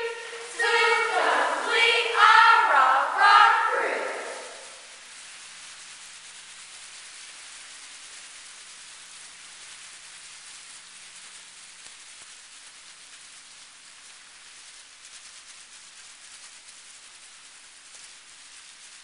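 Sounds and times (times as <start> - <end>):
faint low hum: 0.0 - 5.4
steady hiss: 0.0 - 19.0.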